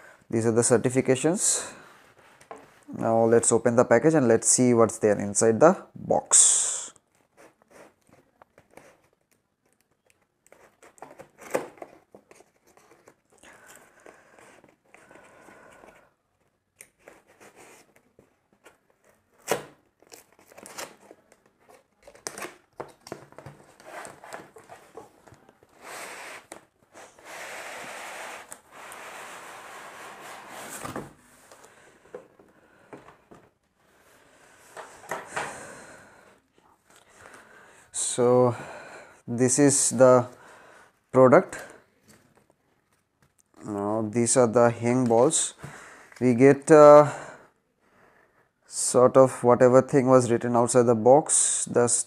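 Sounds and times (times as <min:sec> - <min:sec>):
rustling scrape of contents sliding: 0:23.7 - 0:31.7.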